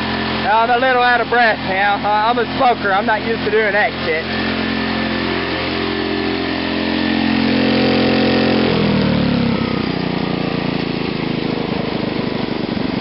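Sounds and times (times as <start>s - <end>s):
small gasoline engine running: 0.0s - 13.0s.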